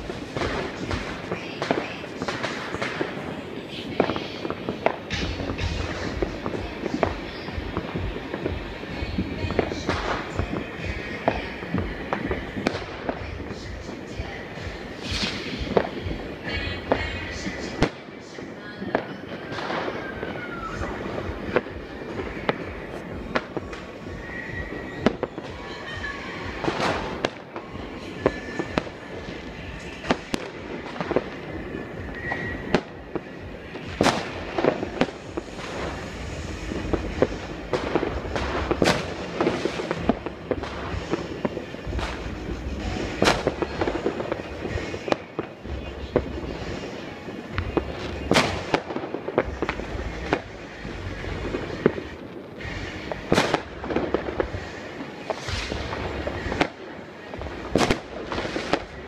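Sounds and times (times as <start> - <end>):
firework bangs: 0.0 - 59.0
fireworks crackling and popping: 0.0 - 59.0
short firework whistles: 14.3 - 17.9, 19.4 - 56.8.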